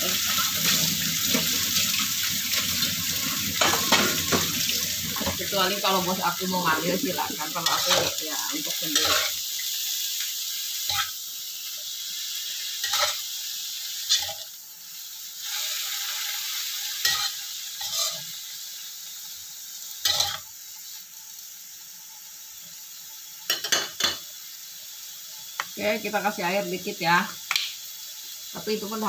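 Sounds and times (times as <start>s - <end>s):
food sizzling in a wok: 0.0s - 29.0s
metal spatula scraping a pan: 6.7s - 9.4s, 10.8s - 11.2s, 12.8s - 13.3s, 14.0s - 14.5s, 17.0s - 18.3s, 20.0s - 20.5s.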